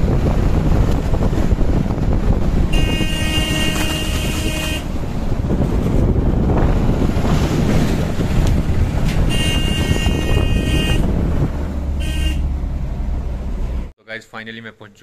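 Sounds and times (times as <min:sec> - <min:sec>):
wind buffeting microphone: 0:00.0 - 0:12.9
car engine and road rumble: 0:00.0 - 0:14.0
vehicle horn: 0:02.7 - 0:05.0, 0:09.2 - 0:11.1, 0:11.9 - 0:12.6.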